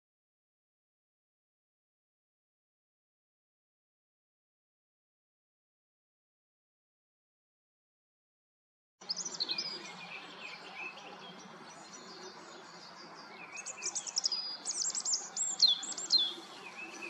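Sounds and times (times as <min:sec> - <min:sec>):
songbirds singing: 0:09.0 - 0:17.0
down-sweeping bird whistles: 0:13.4 - 0:17.0.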